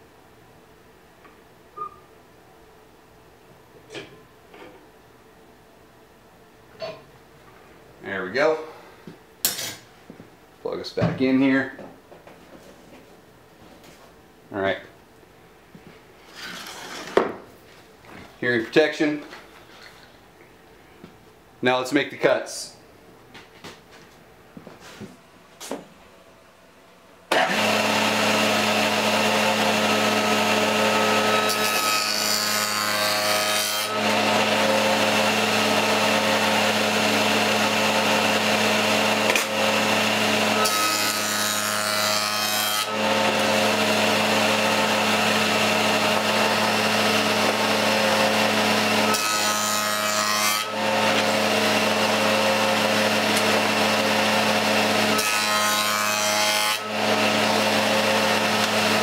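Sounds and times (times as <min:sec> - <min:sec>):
table saw running: 0:27.3 - 0:59.0.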